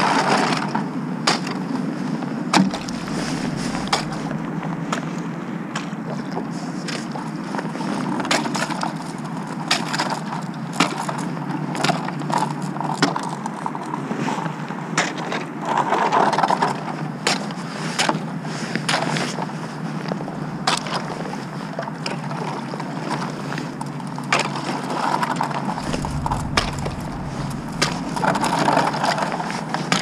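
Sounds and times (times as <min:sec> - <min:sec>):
steady low noise: 0:02.6 - 0:05.7, 0:20.1 - 0:21.4, 0:25.7 - 0:30.0.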